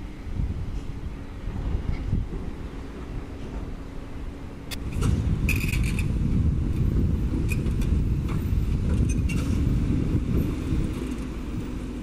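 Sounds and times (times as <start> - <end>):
excavator diesel engine rumbling: 0.0 - 12.0.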